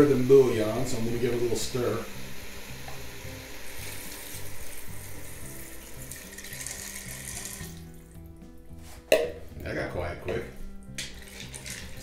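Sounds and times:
liquid pouring and splashing: 3.7s - 8.3s, 10.9s - 12.0s.

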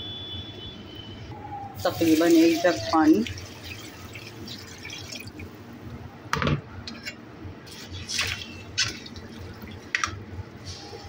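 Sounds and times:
water splashing into pot: 1.8s - 5.6s, 8.0s - 10.2s.

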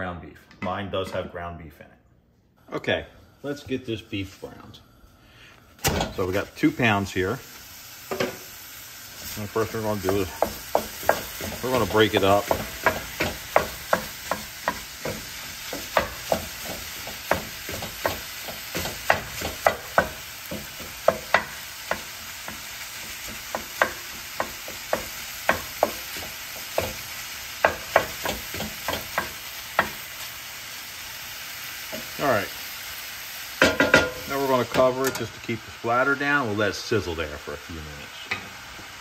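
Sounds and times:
meat sizzling: 5.9s - 39.0s
spatula knocking on pan: 10.0s - 30.0s, 33.6s - 34.2s.

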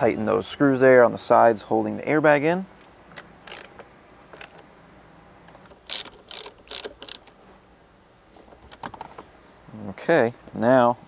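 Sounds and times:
ratchet wrench clicking: 3.1s - 4.6s, 5.7s - 7.4s.

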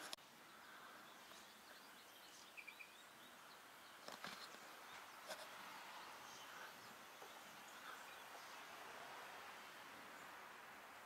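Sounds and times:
faint bird chirps: 0.4s - 8.8s.

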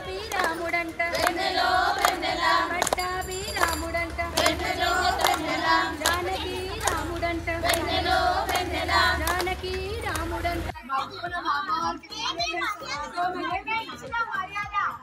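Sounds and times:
hands clapping in rhythm: 0.0s - 10.4s
women singing together: 0.0s - 10.8s, 13.0s - 14.2s.

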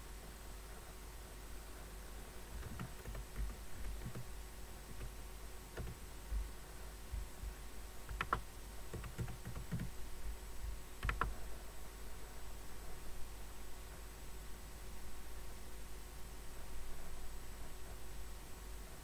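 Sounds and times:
low steady hum: 0.0s - 19.0s
typing on computer keyboard: 2.6s - 4.3s, 4.9s - 5.2s, 5.8s - 6.4s, 8.1s - 10.0s, 11.0s - 11.4s.

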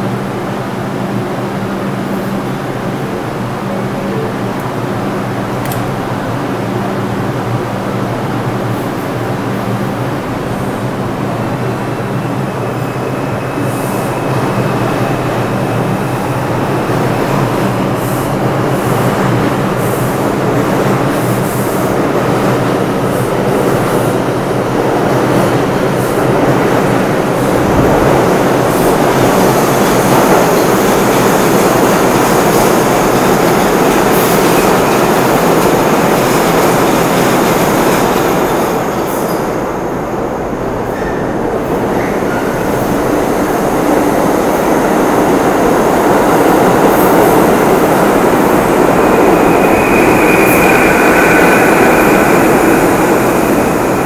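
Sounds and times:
subway train motors humming: 0.0s - 54.0s
train wheels rumbling: 4.3s - 54.0s
high wheel squeal: 48.5s - 54.0s.

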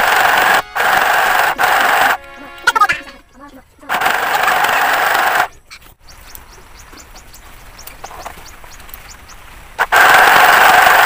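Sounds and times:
sewing machine stitching: 0.0s - 2.2s, 3.9s - 5.5s, 9.8s - 11.0s
birds chirping faintly: 0.0s - 10.0s.

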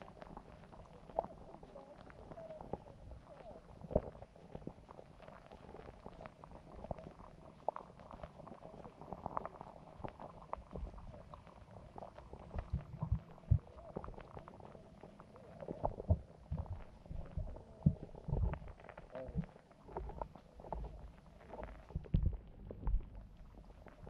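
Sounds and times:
small underwater clicks: 0.0s - 24.0s
low gurgling thumps: 12.2s - 14.5s, 15.6s - 24.0s.

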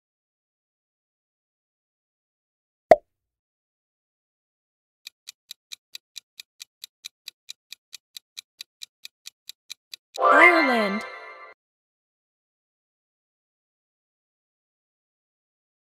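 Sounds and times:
clock ticking quickly: 5.1s - 10.2s.

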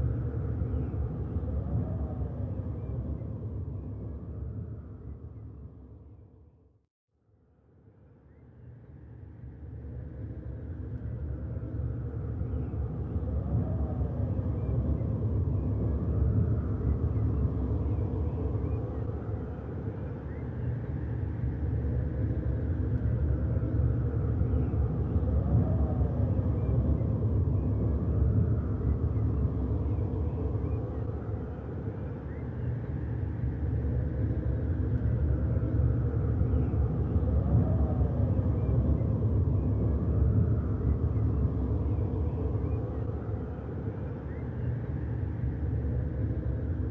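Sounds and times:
low rumbling drone: 20.7s - 46.9s.

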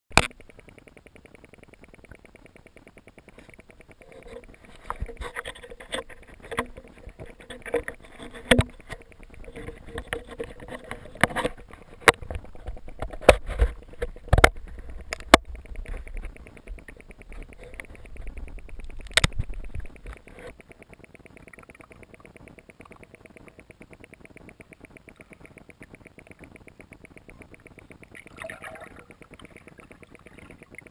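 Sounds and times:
fast even ticking: 0.1s - 30.9s
water sloshing: 2.8s - 20.7s, 27.3s - 30.8s.

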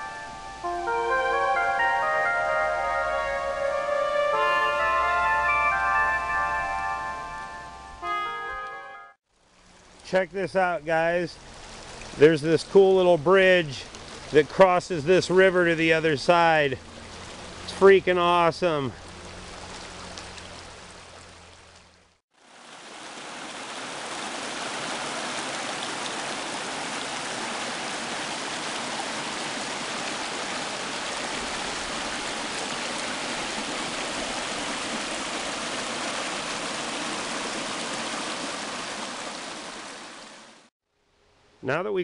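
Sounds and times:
river rushing over rocks: 22.4s - 40.5s.

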